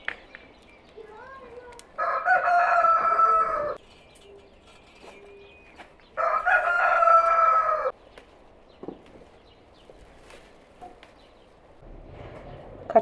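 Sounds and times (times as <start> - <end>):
rooster crowing: 2.0 - 3.8, 6.2 - 7.9.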